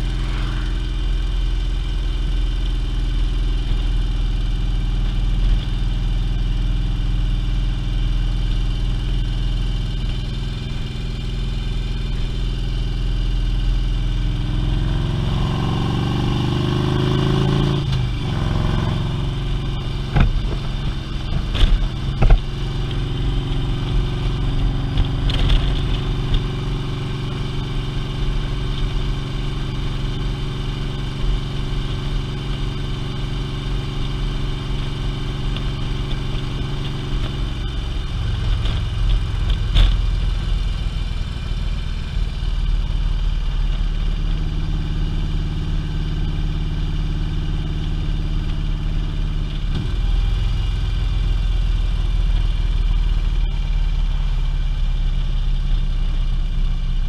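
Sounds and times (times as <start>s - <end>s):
rising engine tone: 0.0s - 2.4s
low wind rumble: 0.0s - 2.6s
motorcycle engine running: 0.0s - 57.0s.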